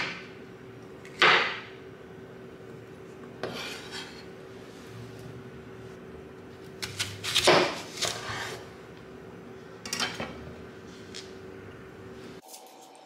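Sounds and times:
faint steady hum: 0.0s - 12.4s
knife slicing fruit on wooden board: 6.8s - 8.6s.

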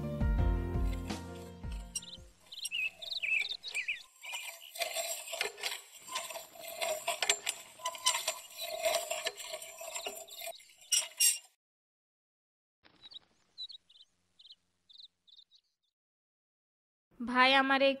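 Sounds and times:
wheelchair clicking and rattling: 0.8s - 11.5s
bird chirps: 1.7s - 5.4s, 12.9s - 15.9s.

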